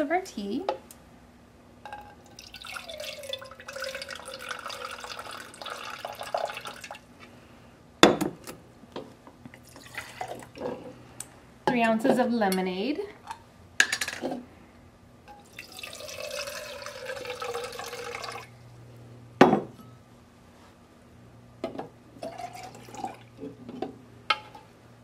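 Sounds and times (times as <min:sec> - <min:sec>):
liquid pouring: 0:02.2 - 0:07.1, 0:09.6 - 0:10.6, 0:15.4 - 0:18.6, 0:22.2 - 0:23.4.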